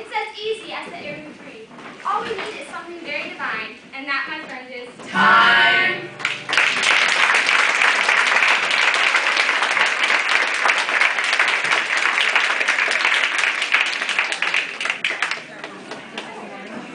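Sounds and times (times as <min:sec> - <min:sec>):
audience applauding: 0:06.2 - 0:16.6.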